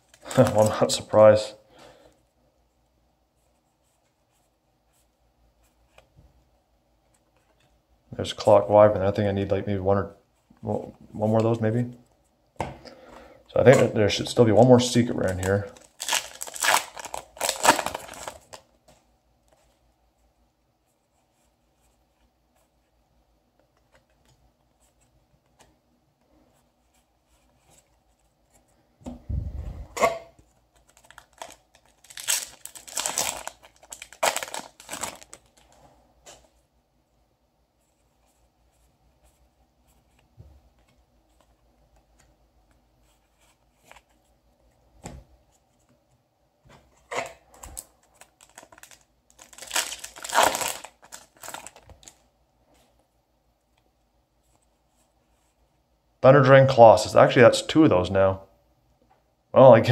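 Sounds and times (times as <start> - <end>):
cards rustling and ticking: 0.0 - 1.1, 14.8 - 19.8, 30.4 - 36.5, 47.6 - 52.2
foil wrappers tearing and crinkling: 15.2 - 18.6, 30.9 - 35.8, 48.2 - 52.2.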